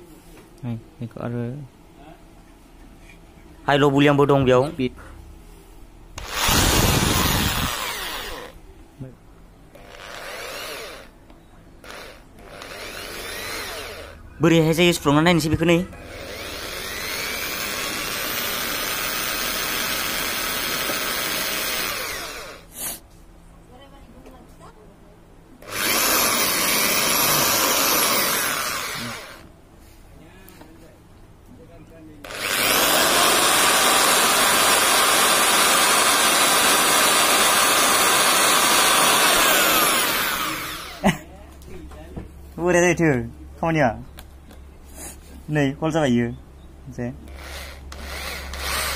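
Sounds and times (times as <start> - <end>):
electric drill boring plastic pipe: 6.2 - 8.6, 9.7 - 11.2, 11.8 - 14.2, 16.0 - 22.7, 25.6 - 29.5, 32.3 - 41.0, 47.3 - 48.9.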